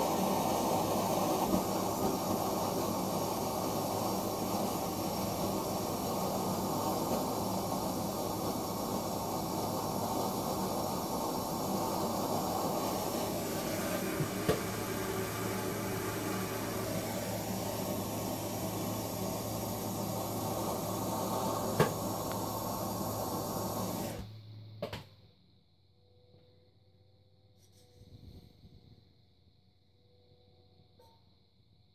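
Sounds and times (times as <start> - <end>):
propane torch hissing: 0.0 - 24.4.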